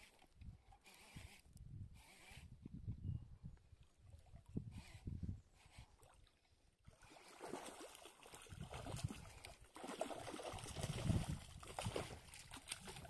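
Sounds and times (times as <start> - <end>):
fish splashing in water: 7.0 - 13.0.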